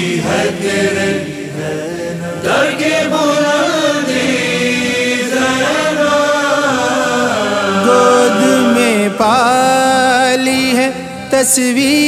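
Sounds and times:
voices holding notes: 0:00.0 - 0:10.8
man singing a long note: 0:07.8 - 0:12.0.

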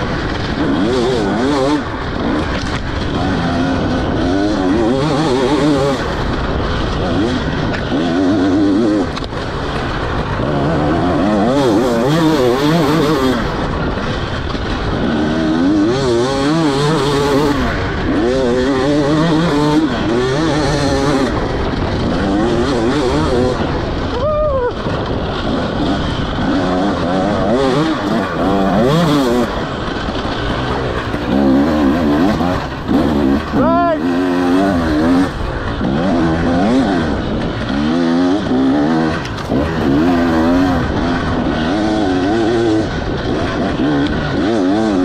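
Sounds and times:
dirt bike engine revving: 0:00.0 - 0:45.0.

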